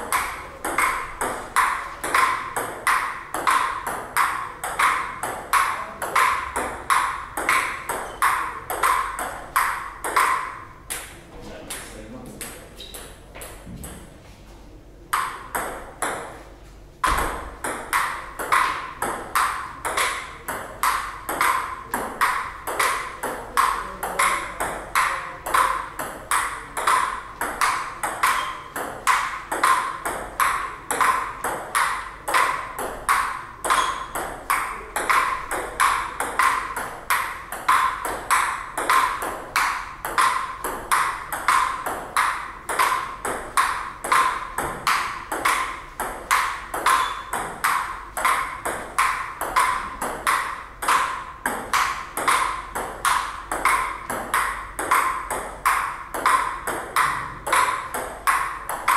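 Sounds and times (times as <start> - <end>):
ping-pong ball clicking: 0.0 - 14.1, 15.1 - 16.4, 17.0 - 58.9.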